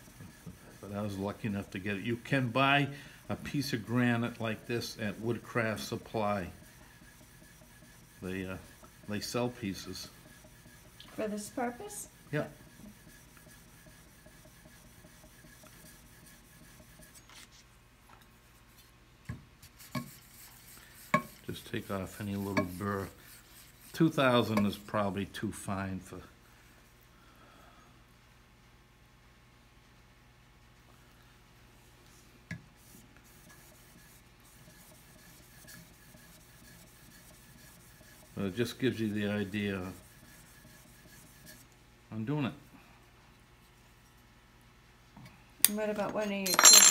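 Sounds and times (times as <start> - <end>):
blade scraping on sandpaper: 3.3 - 17.6, 19.7 - 24.8, 33.3 - 41.7.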